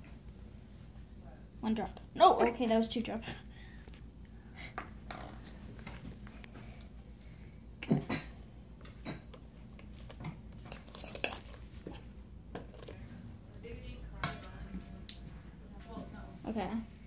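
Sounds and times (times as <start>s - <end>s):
slime being stirred: 8.8s - 13.2s
spoon scraping metal bowl: 10.6s - 13.0s.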